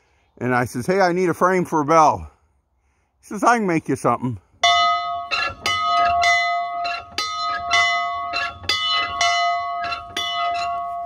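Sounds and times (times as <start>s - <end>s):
bell ringing: 4.6s - 11.0s.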